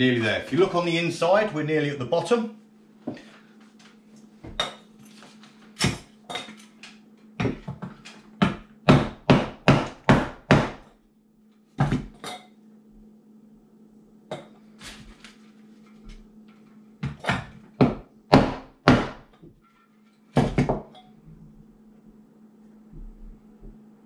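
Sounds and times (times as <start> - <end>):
hammer knocking on wooden block: 7.4 - 10.8, 17.0 - 19.2.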